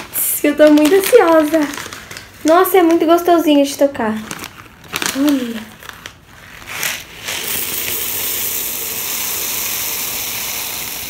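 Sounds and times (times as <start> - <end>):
plastic bag crinkling: 0.0 - 11.0
plastic beads pouring onto slime: 4.2 - 11.0.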